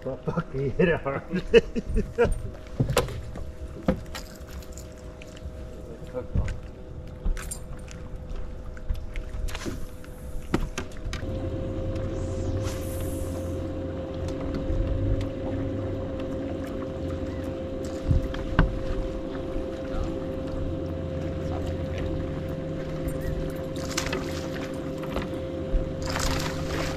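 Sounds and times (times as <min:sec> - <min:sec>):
electric trolling motor humming: 0:08.0 - 0:26.9.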